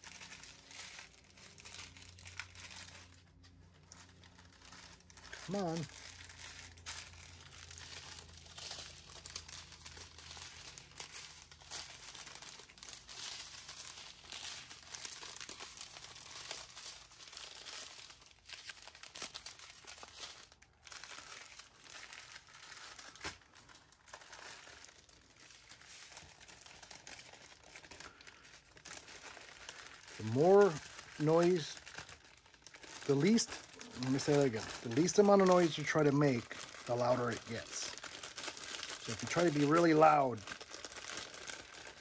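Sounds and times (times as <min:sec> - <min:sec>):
packaging crinkling and rustling: 0:00.0 - 0:42.0.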